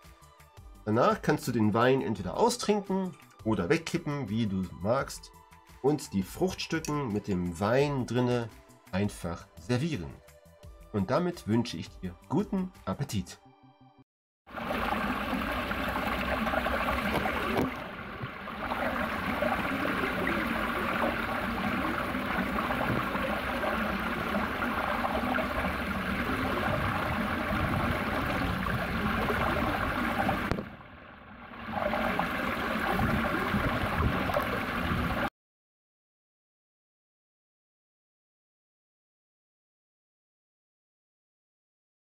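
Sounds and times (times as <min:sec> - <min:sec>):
water rushing over stone: 0:14.5 - 0:35.3.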